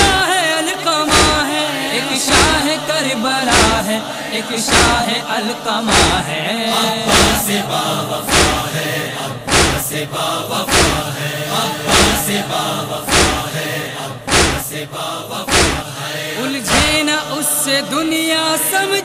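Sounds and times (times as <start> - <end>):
men chanting in chorus: 0.0 - 19.0
sharp regular percussive beat: 1.1 - 1.4, 2.3 - 2.7, 3.5 - 3.8, 4.7 - 5.0, 5.9 - 6.2, 7.1 - 7.5, 8.3 - 8.7, 9.5 - 10.0, 10.7 - 11.1, 11.9 - 12.4, 13.1 - 13.5, 14.3 - 14.8, 15.5 - 15.9.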